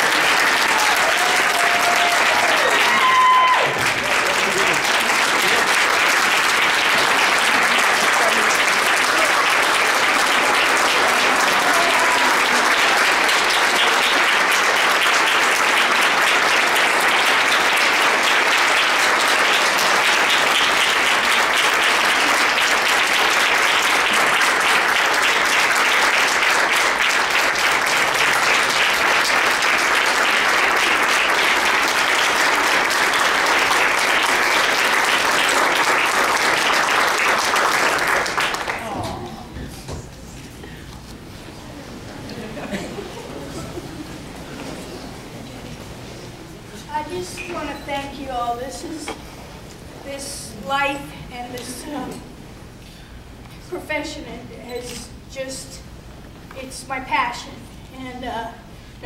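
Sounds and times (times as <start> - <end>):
audience applauding: 0.0 - 39.4.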